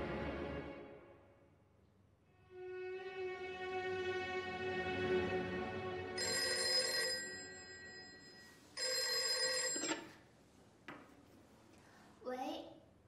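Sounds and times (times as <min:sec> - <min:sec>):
telephone bell ringing: 0:06.2 - 0:10.2.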